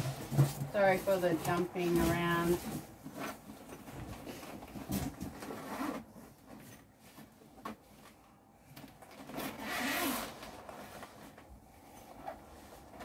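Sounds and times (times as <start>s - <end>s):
zipper opening: 5.4s - 6.2s, 9.1s - 11.4s.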